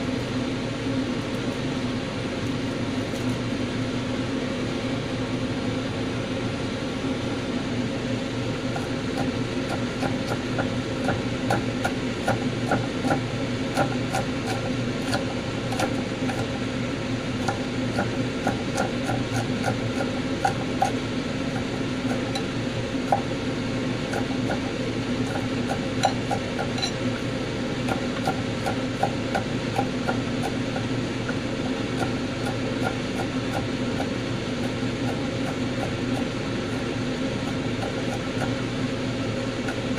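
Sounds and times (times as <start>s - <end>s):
steady low hum: 0.0s - 39.9s
knife chopping on wooden board: 8.8s - 16.5s, 17.4s - 23.3s, 27.8s - 36.8s, 37.4s - 38.6s.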